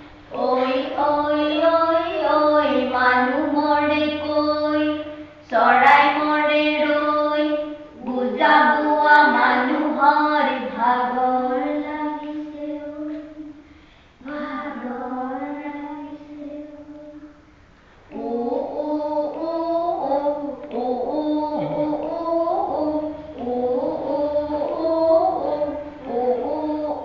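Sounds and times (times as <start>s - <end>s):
voices chanting in long held notes: 18.1s - 27.0s.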